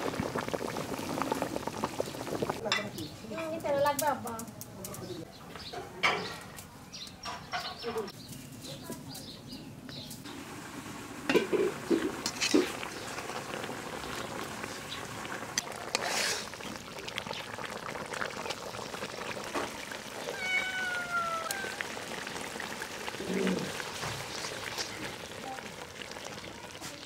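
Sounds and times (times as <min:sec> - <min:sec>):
curry simmering: 0:00.0 - 0:03.1, 0:10.2 - 0:27.0
stirring in a pan: 0:11.3 - 0:20.3
cat meowing: 0:20.1 - 0:22.2.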